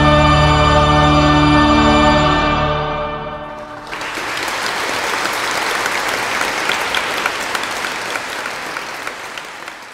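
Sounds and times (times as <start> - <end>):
audience applauding: 3.6 - 9.9.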